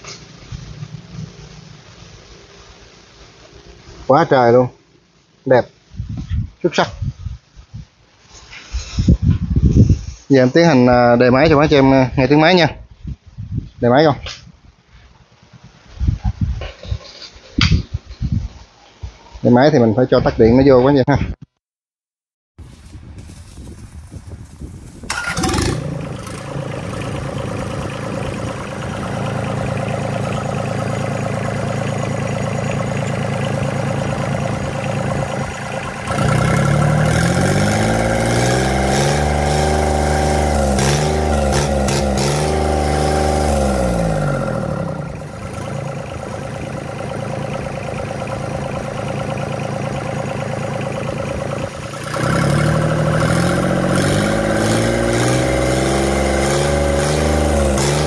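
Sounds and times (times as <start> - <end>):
diesel engine idling and revving: 25.1 - 58.0.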